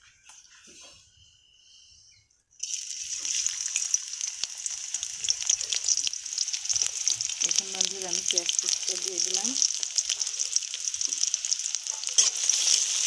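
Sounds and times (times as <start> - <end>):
onion sizzling in hot oil: 2.6 - 13.0.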